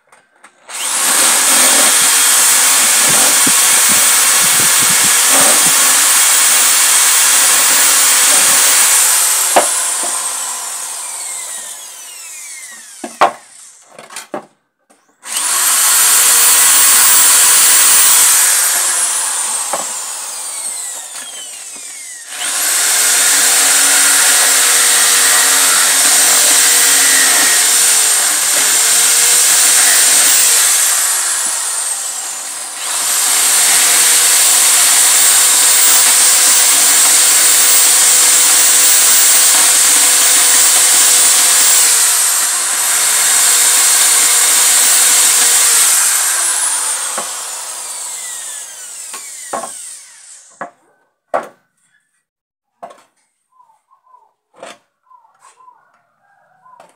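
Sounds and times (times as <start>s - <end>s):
electric drill boring wood: 0.6s - 14.0s, 15.2s - 50.7s.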